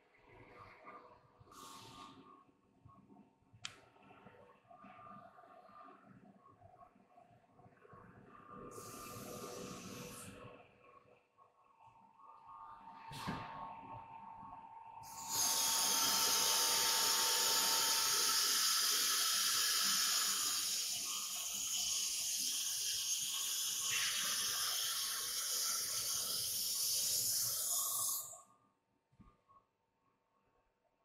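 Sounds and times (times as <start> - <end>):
compressed air hissing: 15.0 - 21.2, 25.5 - 28.4.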